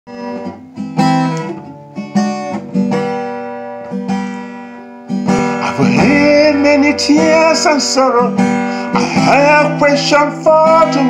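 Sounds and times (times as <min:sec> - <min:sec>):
acoustic guitar strumming chords: 0:00.1 - 0:11.0.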